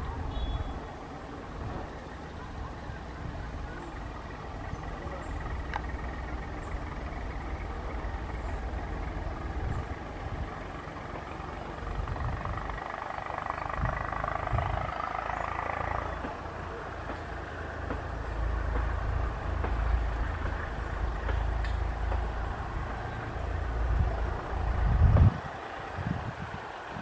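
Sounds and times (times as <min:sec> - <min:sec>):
diesel locomotive rumbling: 0:00.0 - 0:27.0.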